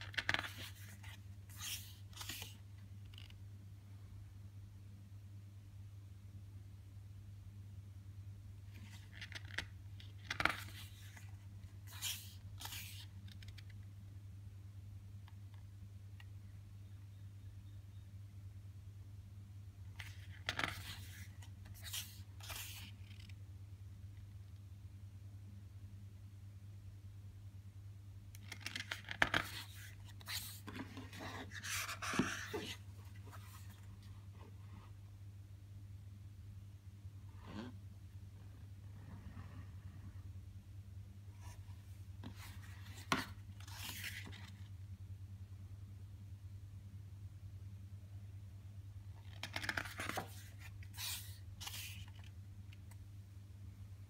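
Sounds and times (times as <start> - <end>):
pages turning and rustling: 0.0 - 3.4, 8.7 - 13.8, 19.9 - 23.4, 28.4 - 33.9, 42.2 - 44.7, 49.2 - 53.0
faint low hum: 0.0 - 54.0.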